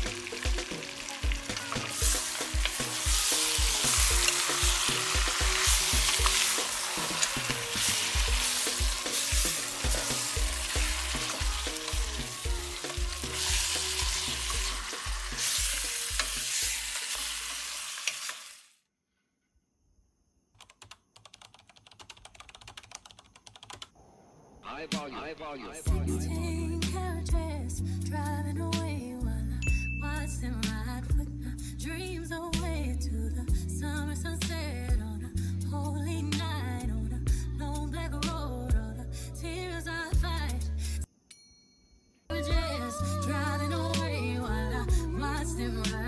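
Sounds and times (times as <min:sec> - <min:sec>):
meat sizzling in a pot: 0:00.0 - 0:18.8.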